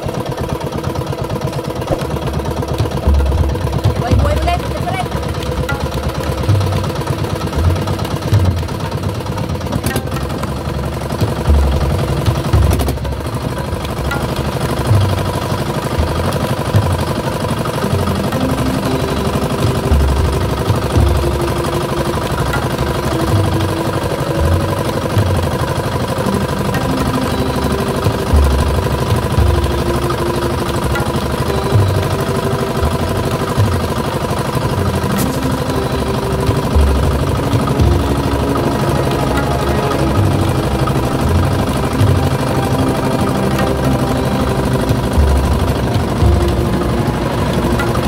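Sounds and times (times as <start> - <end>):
small boat engine running: 0.0 - 48.0.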